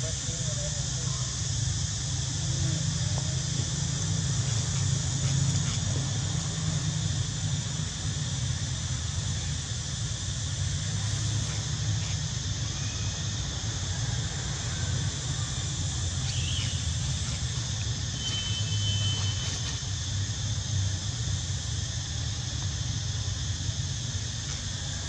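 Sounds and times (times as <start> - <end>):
low hum and hiss: 0.0 - 25.0
thin high whistle: 16.2 - 16.9, 18.2 - 19.6.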